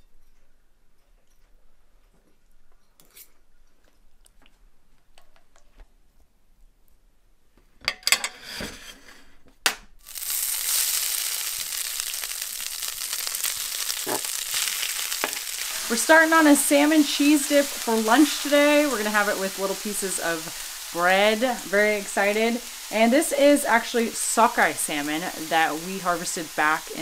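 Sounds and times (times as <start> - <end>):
knocks and scrapes: 8.1 - 9.6
fish frying in skillet: 10.0 - 27.0.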